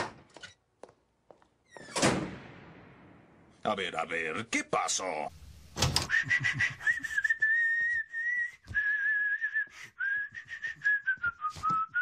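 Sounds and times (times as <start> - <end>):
man whistling a tune: 6.1 - 12.0.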